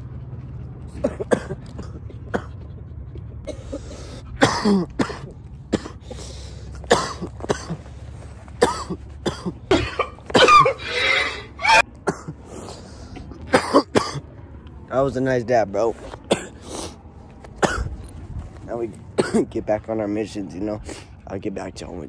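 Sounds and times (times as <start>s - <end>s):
throat clearing: 0.9s - 2.7s, 3.5s - 6.2s, 6.8s - 7.9s, 8.6s - 10.8s, 16.3s - 16.7s, 17.6s - 18.0s, 19.2s - 19.5s
man coughing hard: 1.0s - 2.6s, 3.5s - 7.9s, 8.6s - 12.5s, 13.5s - 14.3s, 16.3s - 16.8s, 17.6s - 18.0s, 19.2s - 19.6s.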